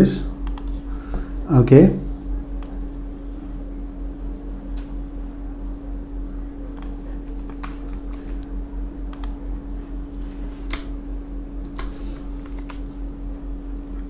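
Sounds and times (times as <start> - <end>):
low electrical hum: 0.0 - 14.0
computer keyboard keystrokes: 0.4 - 0.7, 6.8 - 8.2, 9.1 - 9.4.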